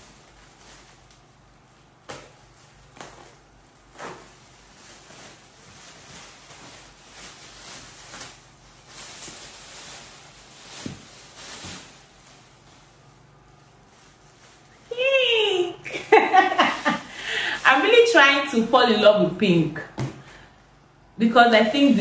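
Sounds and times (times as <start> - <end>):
package rustling and scraping: 0.0 - 15.0
knocks and thuds on package: 10.8 - 11.8.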